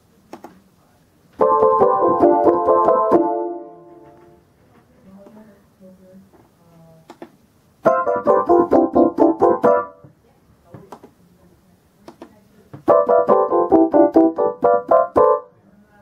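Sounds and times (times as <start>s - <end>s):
electric piano keyboard runs: 1.4s - 4.4s, 7.9s - 10.0s, 12.8s - 15.5s.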